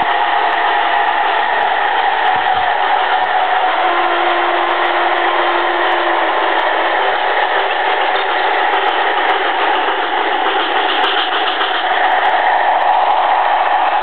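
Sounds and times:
model trains whirring past: 0.0s - 14.0s.

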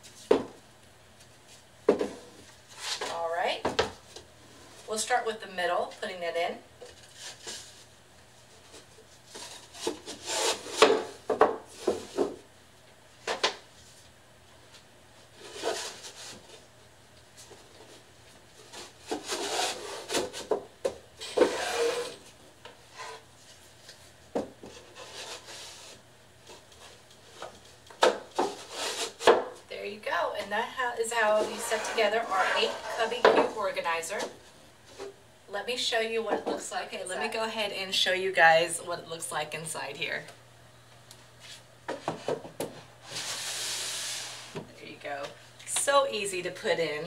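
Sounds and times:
boards scraping and rubbing: 19.1s - 20.3s, 21.2s - 22.2s, 31.2s - 34.2s.

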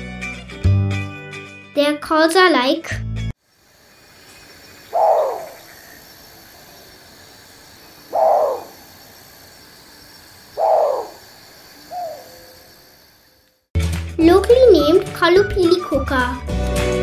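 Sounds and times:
bird calling with descending notes: 4.7s - 5.9s, 7.9s - 8.9s, 10.6s - 11.2s, 11.8s - 12.8s.

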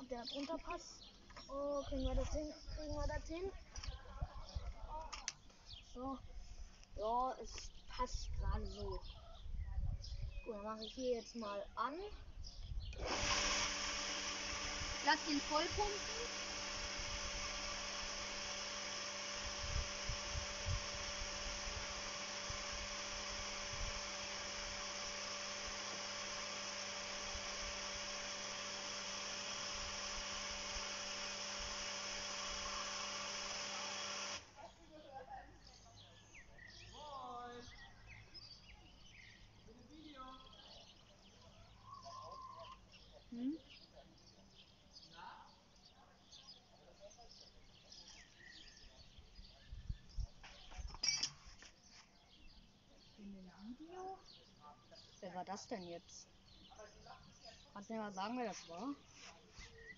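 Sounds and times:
birds chirping faintly: 0.0s - 13.0s, 34.5s - 59.9s
electric water pump running: 12.9s - 34.8s.

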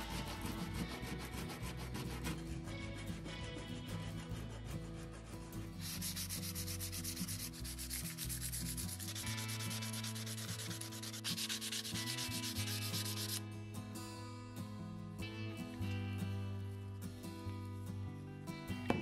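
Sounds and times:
sandpaper rasping on metal: 0.0s - 13.4s.

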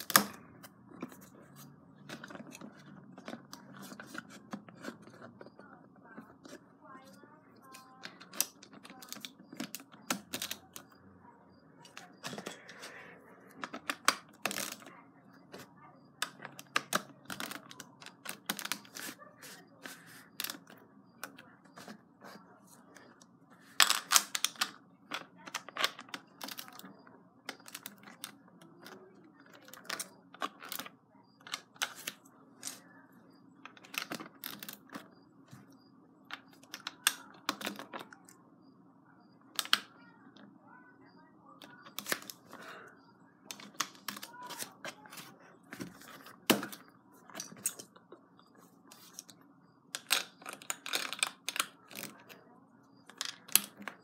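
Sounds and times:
plastic bricks clicking and snapping: 0.0s - 0.4s, 7.6s - 10.9s, 13.6s - 14.9s, 15.5s - 19.2s, 23.8s - 26.9s, 27.5s - 32.8s, 33.6s - 35.6s, 36.3s - 38.3s, 39.5s - 39.9s, 41.6s - 42.8s, 43.5s - 48.1s, 48.9s - 52.4s, 53.1s - 54.0s.

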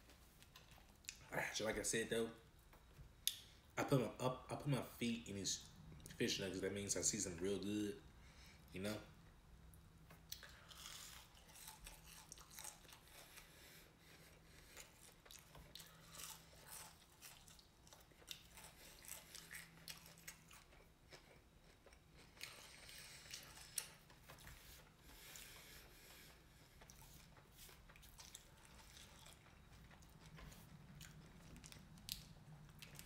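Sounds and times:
person chewing crunchy food: 10.3s - 33.0s.

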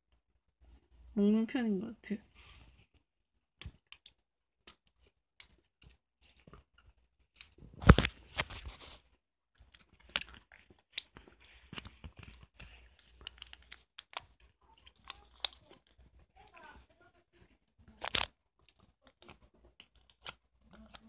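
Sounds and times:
person eating yogurt: 2.9s - 21.0s.

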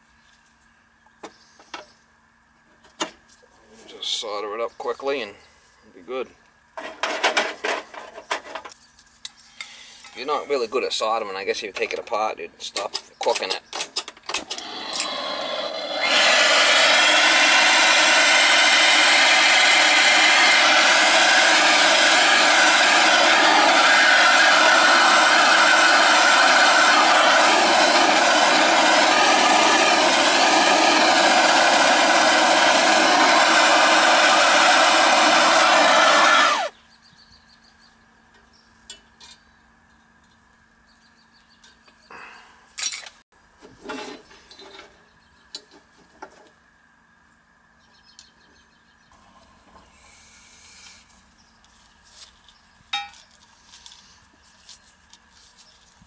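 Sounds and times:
torch flame hissing: 14.6s - 36.7s.

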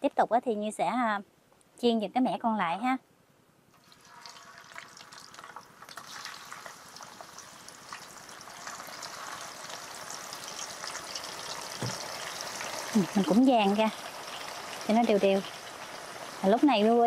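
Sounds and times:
food sizzling in hot oil: 3.8s - 17.0s.

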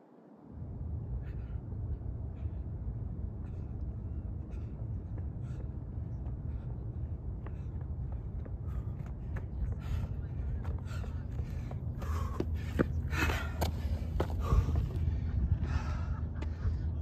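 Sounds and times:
wind buffeting microphone: 0.5s - 17.0s.

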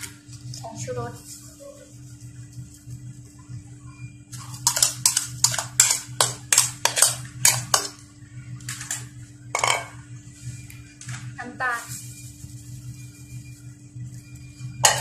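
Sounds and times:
spoon scraping and tapping container: 4.4s - 7.9s.

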